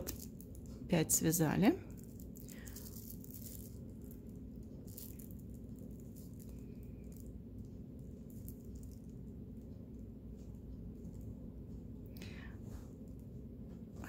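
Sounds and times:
plastic yarn crinkling: 0.0 - 9.3
low hum: 0.0 - 14.0.

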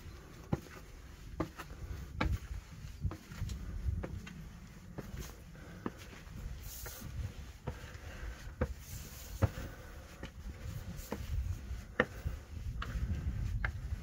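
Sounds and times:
footsteps on a path: 0.0 - 14.0.

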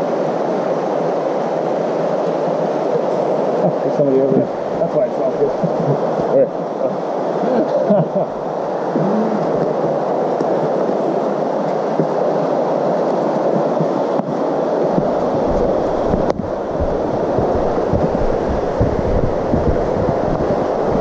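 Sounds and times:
creek rushing: 0.0 - 21.0
low microphone rumble: 13.5 - 21.0.

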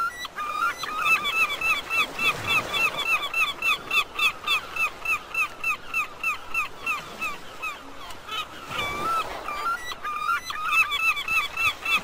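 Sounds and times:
gull calling: 0.0 - 12.0.

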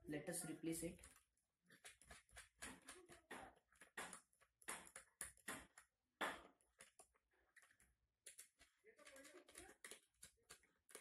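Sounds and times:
clicks and rustles of handled wires: 6.6 - 11.0.

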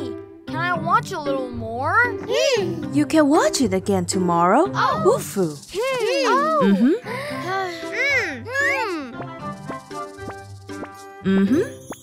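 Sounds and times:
cartoon music with plucked notes: 4.6 - 12.0.

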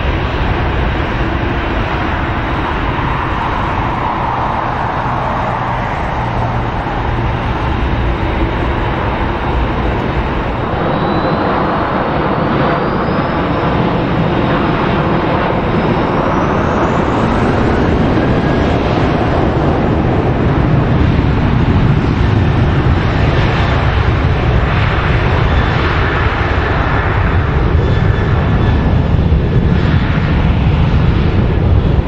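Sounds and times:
jet engines at takeoff power: 0.0 - 32.0.

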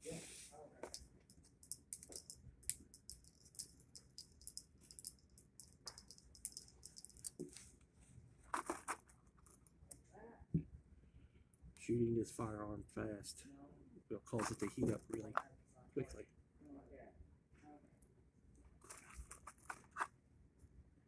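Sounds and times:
metallic clicks of cartridges: 0.8 - 7.6.

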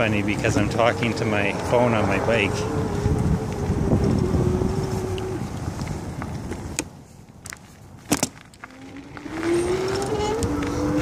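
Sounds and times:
electric bike motor hum: 0.0 - 6.8, 8.6 - 11.0
wind buffeting microphone: 0.0 - 11.0.

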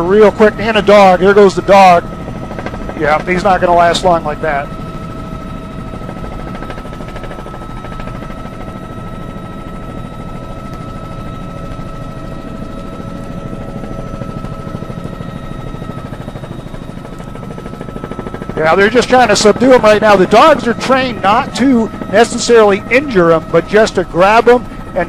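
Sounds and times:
helicopter engine whine: 0.0 - 25.0
helicopter rotor chop: 0.0 - 25.0.

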